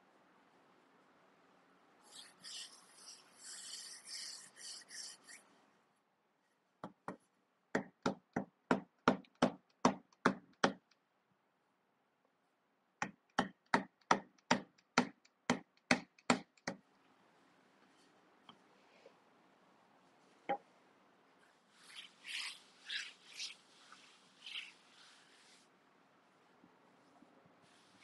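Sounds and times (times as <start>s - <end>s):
rolling pin rubbing dough: 21.6s - 25.7s.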